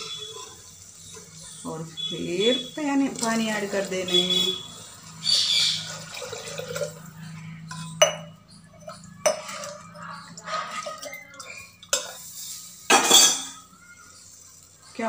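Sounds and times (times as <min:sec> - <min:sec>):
ladle scraping a metal pot: 0:08.8 - 0:13.6.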